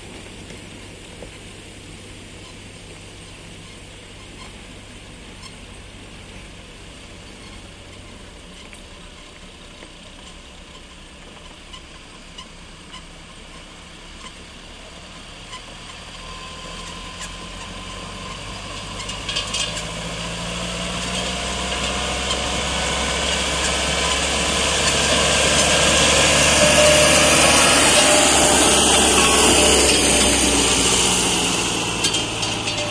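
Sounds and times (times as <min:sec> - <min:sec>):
tractor engine running: 0:00.0 - 0:32.9
rattling clatter: 0:21.0 - 0:32.9.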